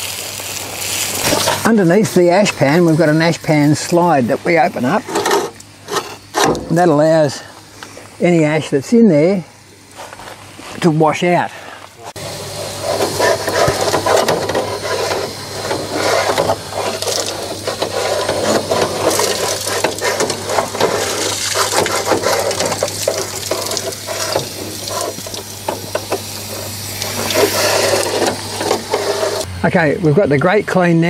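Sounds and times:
hose water spraying and splashing: 0:00.0 - 0:06.3, 0:12.0 - 0:29.5.

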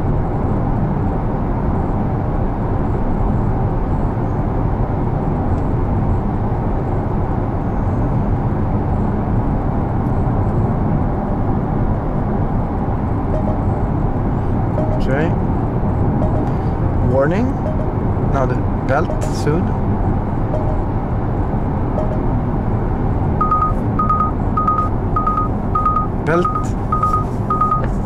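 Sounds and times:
tyre and road noise: 0:00.0 - 0:28.0.

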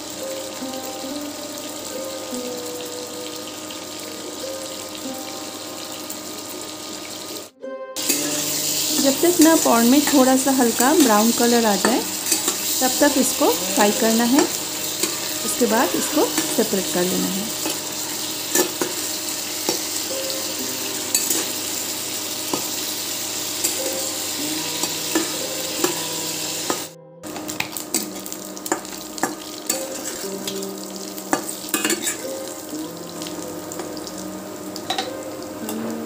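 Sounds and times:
prawns sizzling in oil: 0:00.0 - 0:36.0
spatula scraping a pan: 0:10.9 - 0:20.0.

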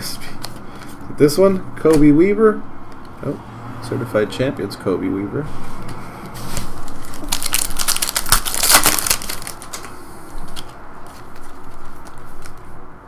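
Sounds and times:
trading cards rustling: 0:00.2 - 0:01.1, 0:05.6 - 0:12.8.

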